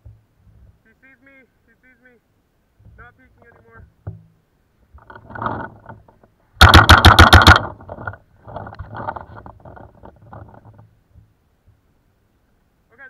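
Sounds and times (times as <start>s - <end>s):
paintball marker firing: 6.6s - 8.0s.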